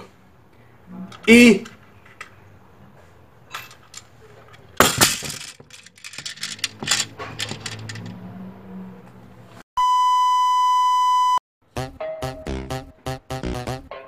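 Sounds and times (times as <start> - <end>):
small hard clicks and rattles: 3.5 - 8.1
toy grenade knocking in box: 4.8 - 8.0.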